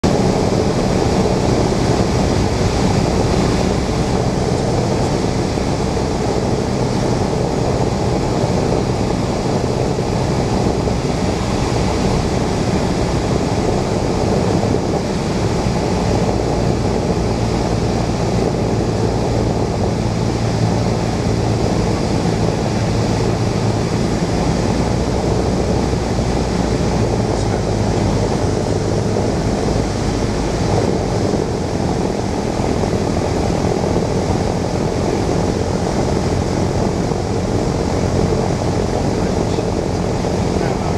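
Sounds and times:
propeller engine droning: 0.0s - 40.9s
rush of air: 0.0s - 40.9s.

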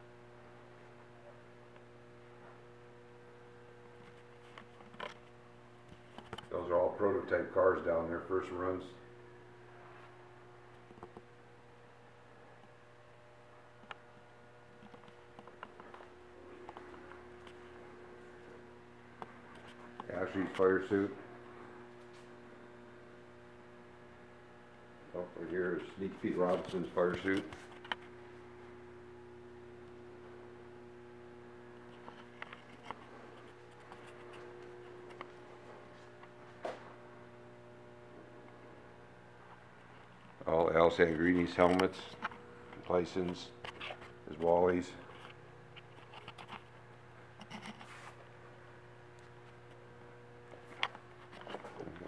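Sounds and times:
faint steady hum: 0.0s - 52.0s.

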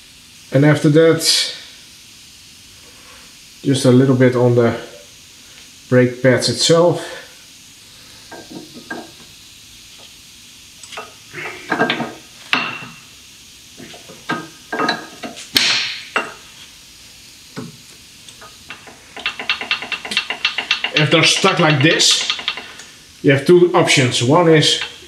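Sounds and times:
metal clinks and knocks: 18.7s - 22.8s
metal scraping: 18.7s - 22.8s
quick ticks: 18.7s - 22.9s.

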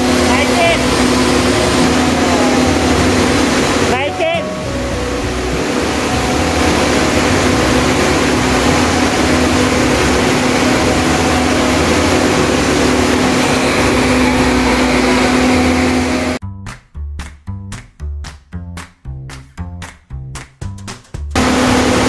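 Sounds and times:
wind tunnel fan rushing air: 0.0s - 16.4s, 21.4s - 22.0s.

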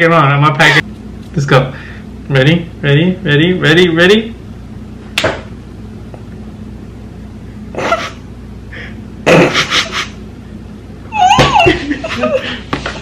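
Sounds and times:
stifled breathy laughter: 7.7s - 10.2s, 11.2s - 12.7s.

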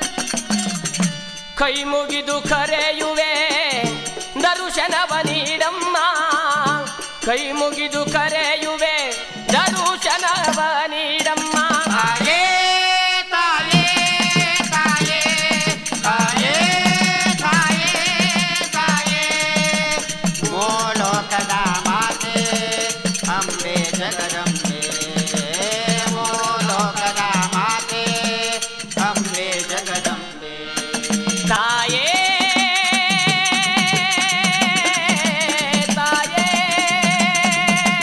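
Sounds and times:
hand drum beat: 0.0s - 1.3s, 9.4s - 12.4s, 13.6s - 30.2s, 30.8s - 38.0s
rattling hand percussion: 0.0s - 12.5s, 13.6s - 38.0s.

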